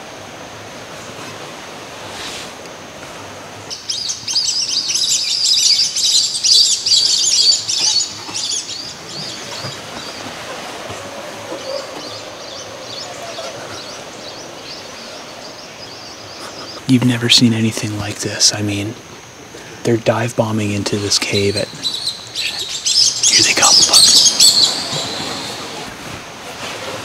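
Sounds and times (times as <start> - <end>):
swifts twittering chirps: 3.7 - 18.9, 20.5 - 26.0.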